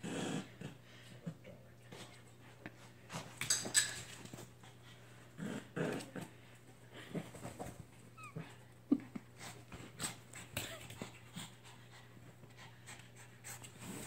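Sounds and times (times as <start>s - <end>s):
dogs growling and scuffling: 0.0s - 14.0s
dog whining: 8.1s - 8.6s.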